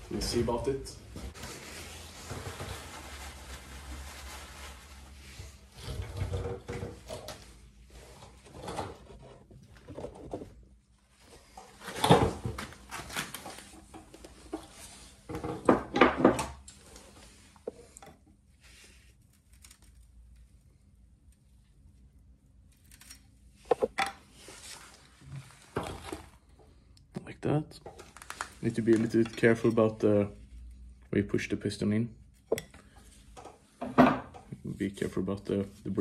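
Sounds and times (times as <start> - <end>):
tools knocking and scraping: 23.7 - 24.2, 32.5 - 34.5.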